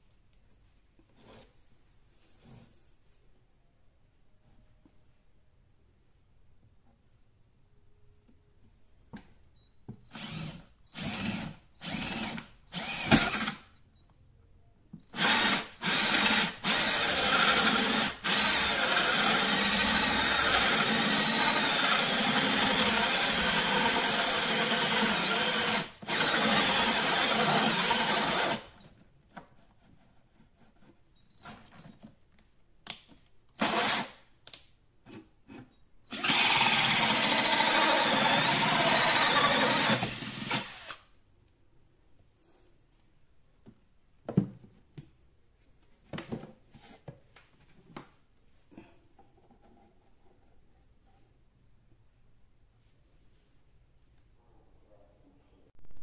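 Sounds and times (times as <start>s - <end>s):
drill hole saw cutting pipe: 10.1s - 13.6s, 15.2s - 28.7s, 33.6s - 34.1s, 36.1s - 41.0s.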